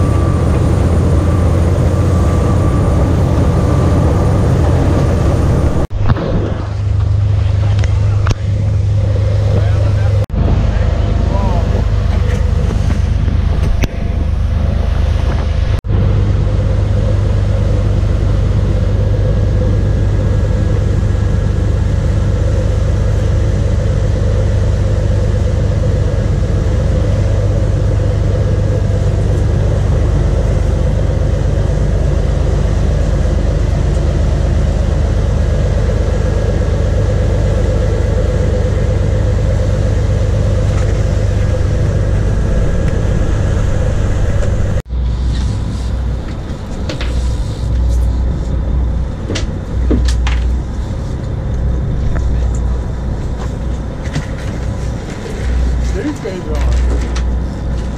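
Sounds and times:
water rushing from wake: 0.0 - 46.2
boat engines droning: 0.0 - 57.9.

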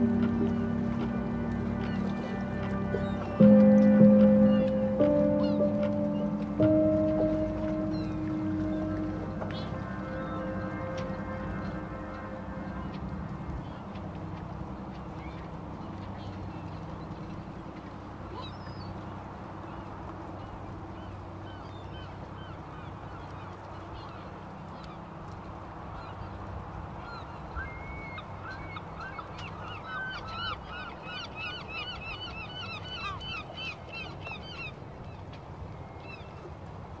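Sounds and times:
flock of birds calling: 0.0 - 13.7
steady low hum: 0.0 - 14.9.

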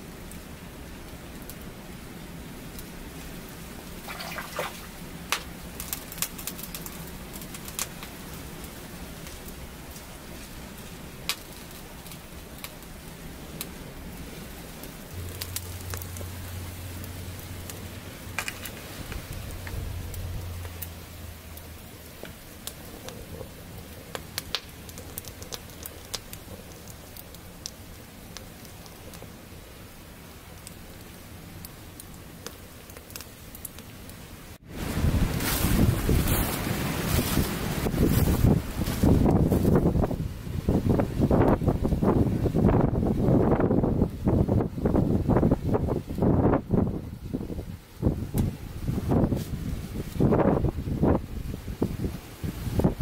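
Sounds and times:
light rain pattering: 0.0 - 53.0
sharp drips: 4.0 - 5.0
low rumble: 15.1 - 21.8.

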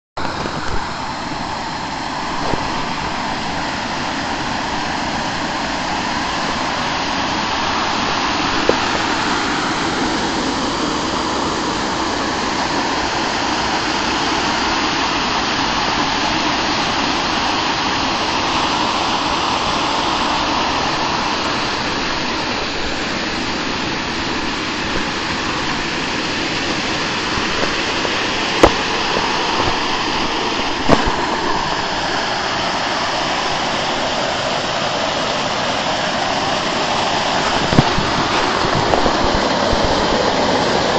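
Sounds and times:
water rushing over dam: 0.2 - 40.9.

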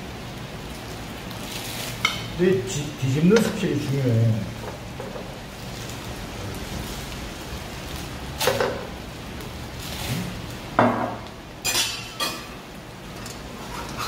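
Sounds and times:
pancake sizzling in oil: 0.0 - 14.0
metal utensils clanking on wok: 3.3 - 3.7, 8.4 - 8.9, 11.6 - 14.0.

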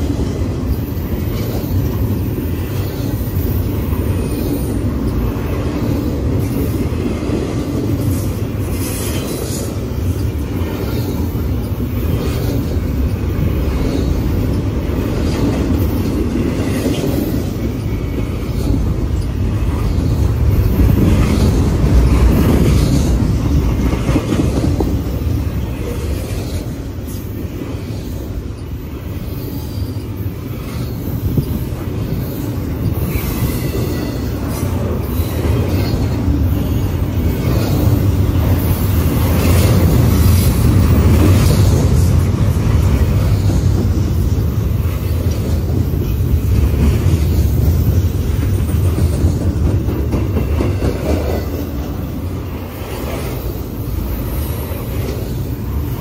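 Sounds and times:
freight train wheel rumble: 0.0 - 56.0
light wheel squeal: 28.1 - 34.4.

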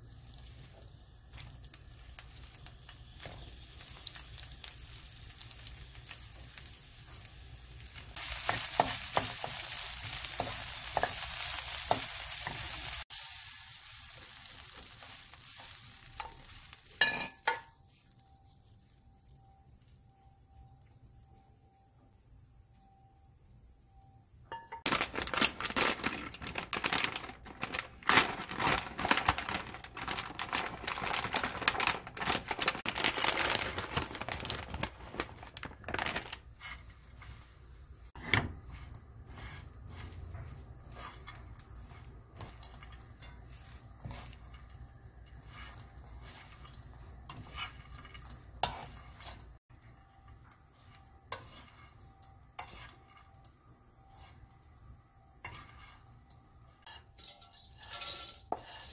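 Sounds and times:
dried fish rattling in frying pan: 0.0 - 19.0, 24.8 - 58.9
chopsticks scraping pan: 38.2 - 54.7, 55.4 - 58.9.

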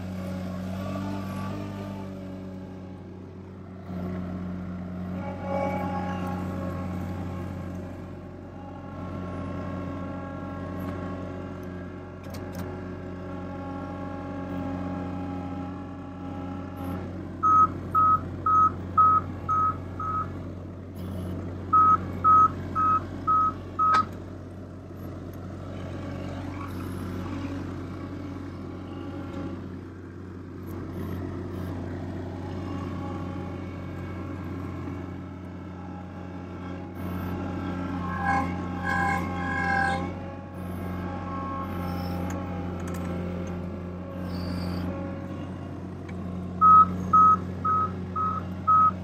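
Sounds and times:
diesel engine running: 0.0 - 49.0
short electronic beeps: 21.8 - 24.0, 46.6 - 49.0.

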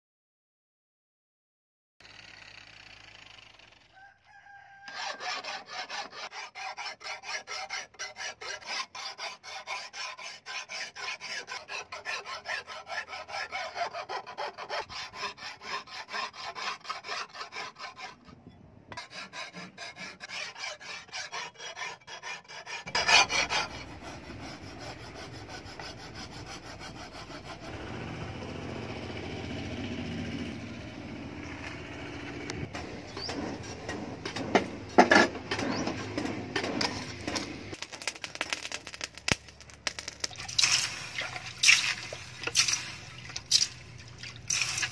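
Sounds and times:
file rasping on knife blade: 4.8 - 28.0, 32.8 - 37.8.

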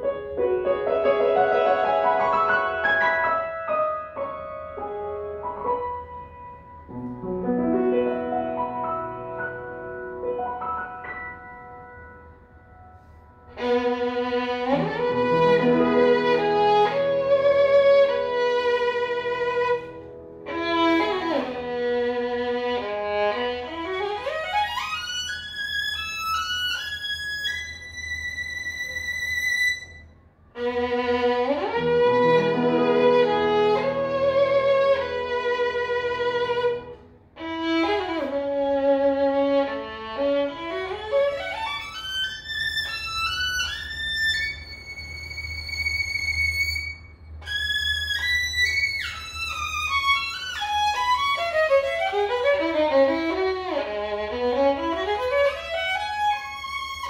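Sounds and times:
piano accompaniment: 0.0 - 57.0
violin: 13.0 - 57.0.

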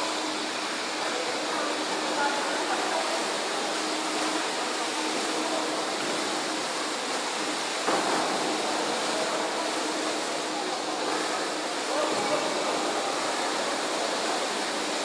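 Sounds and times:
water splashing in pool: 0.0 - 15.0.

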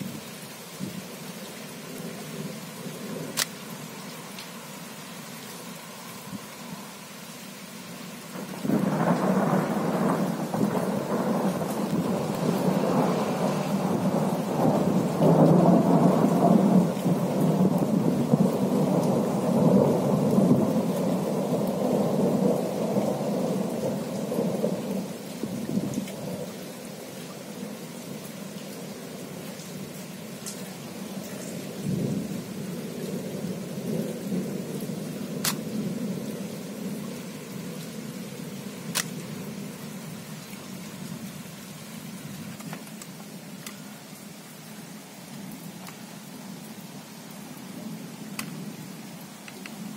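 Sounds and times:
rolling thunder: 8.4 - 26.5.

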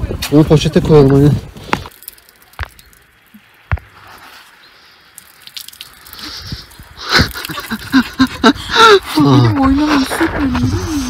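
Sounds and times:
water pouring from plastic bottle: 1.6 - 8.4.

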